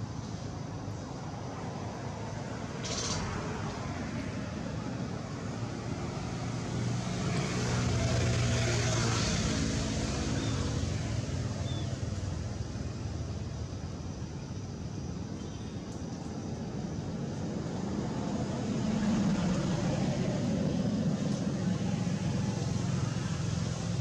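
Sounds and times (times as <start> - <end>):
passing vehicle engine: 2.8 - 12.6, 17.8 - 24.0.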